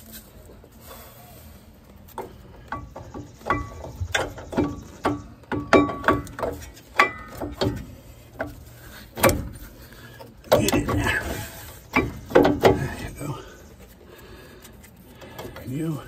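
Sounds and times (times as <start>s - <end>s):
metal clanks and rings: 2.7s - 9.6s, 10.6s - 13.2s.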